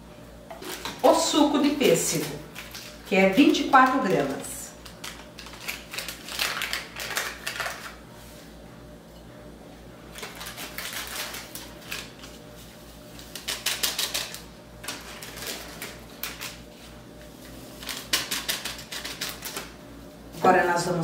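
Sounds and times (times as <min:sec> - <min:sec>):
plastic sachet crinkling: 0:00.6 - 0:08.0, 0:10.2 - 0:12.4.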